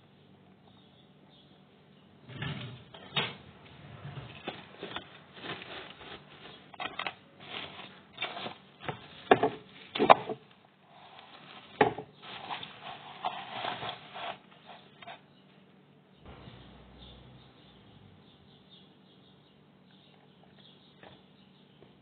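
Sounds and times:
cling film crinkling: 4.3 - 10.0.

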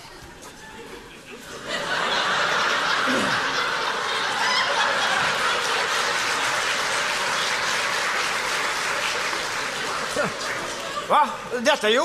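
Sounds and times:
audience laughing: 0.6 - 11.6
audience applauding: 1.8 - 11.4.

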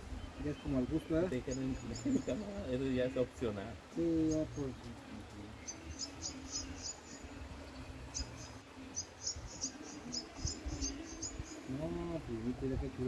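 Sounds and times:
small bird chirping: 4.2 - 11.9.

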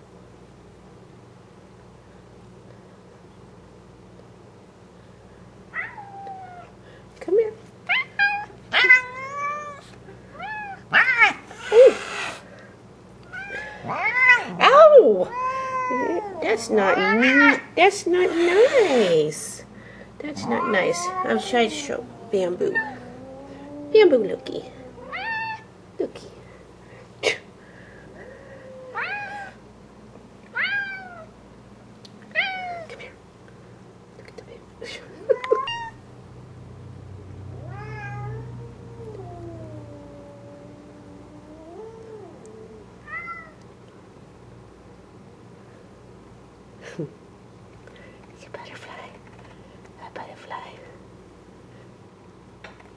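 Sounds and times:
cats meowing: 5.8 - 6.7, 7.9 - 12.4, 13.2 - 19.1, 20.2 - 25.7, 28.2 - 29.6, 30.5 - 31.3, 32.3 - 32.9, 35.3 - 36.0, 37.6 - 43.6
cat hissing: 7.9 - 12.6, 13.3 - 19.5, 20.3 - 25.7.

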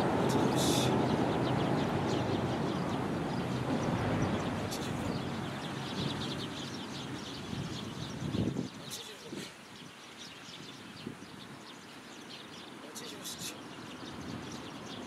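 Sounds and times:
passing vehicle rumble: 0.0 - 8.2.

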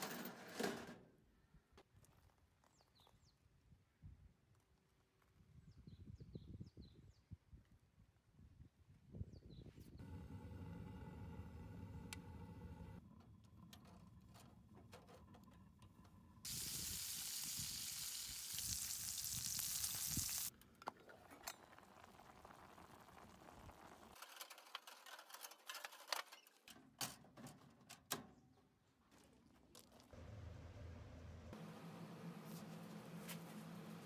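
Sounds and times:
stove hissing: 16.5 - 20.5.

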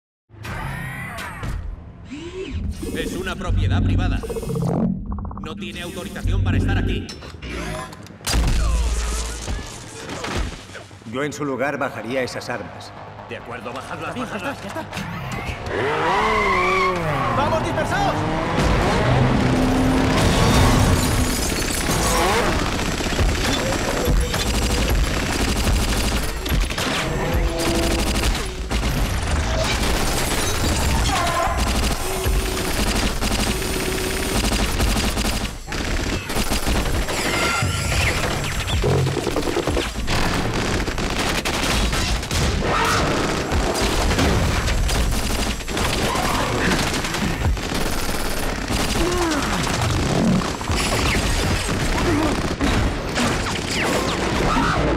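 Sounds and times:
automatic gunfire: 21.8 - 37.5, 39.4 - 42.3, 43.1 - 53.8.

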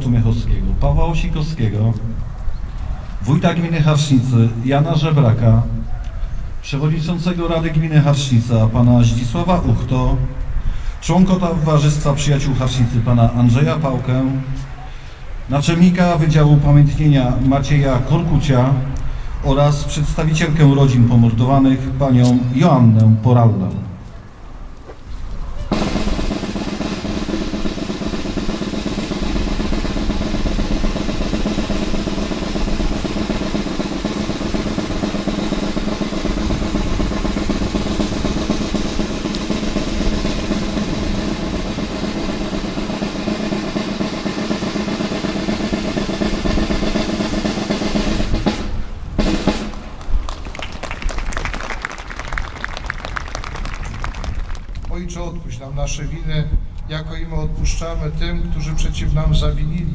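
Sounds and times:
snare drum roll: 25.7 - 55.0
people clapping: 49.6 - 55.0.

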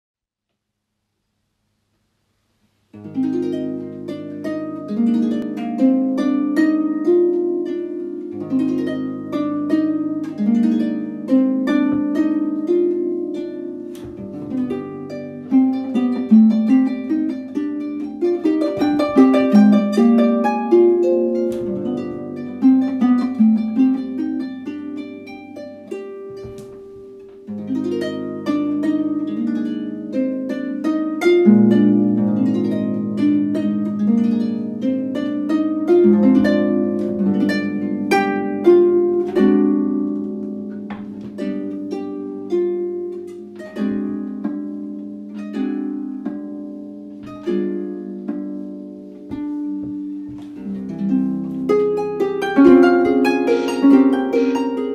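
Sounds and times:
solo pedal harp music: 2.9 - 54.9.

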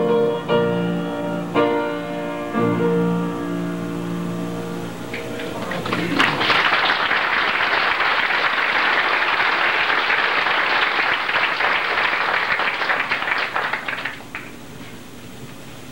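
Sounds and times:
congregation applauding: 5.1 - 14.7.

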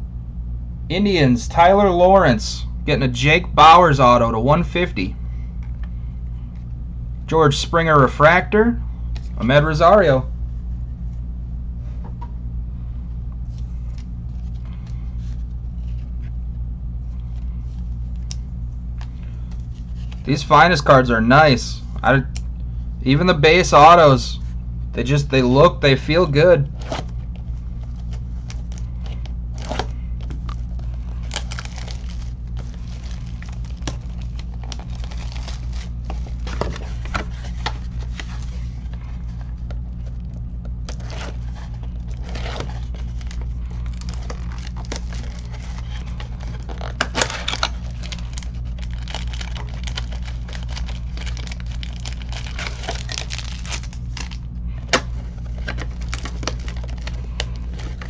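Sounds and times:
low electrical hum: 0.0 - 58.0
cards being handled: 13.4 - 20.9, 23.7 - 58.0
foil wrappers tearing and crinkling: 26.7 - 58.0.

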